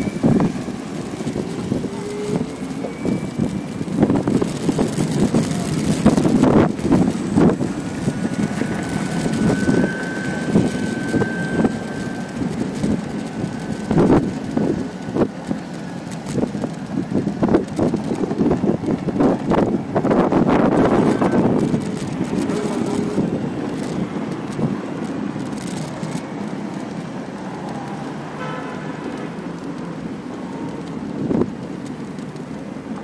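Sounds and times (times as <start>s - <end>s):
wind on microphone: 0.0s - 29.3s, 30.0s - 32.3s
small wheels rolling on asphalt: 0.0s - 33.0s
wheels knocking over joints: 0.0s - 33.0s
faint high whine: 8.6s - 12.4s.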